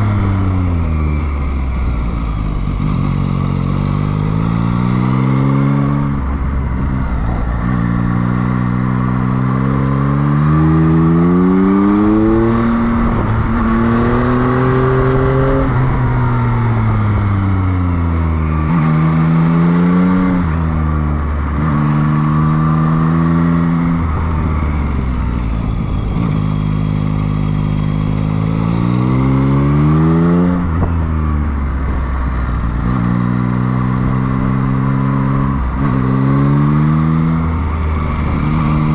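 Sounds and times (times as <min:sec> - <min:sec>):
motorcycle engine revving: 0:00.0 - 0:38.9
wind rushing: 0:10.6 - 0:17.7.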